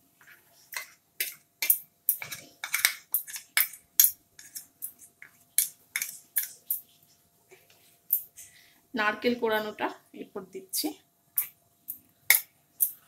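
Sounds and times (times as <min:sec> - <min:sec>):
spoon scraping and clinking bowl: 0:00.2 - 0:06.8.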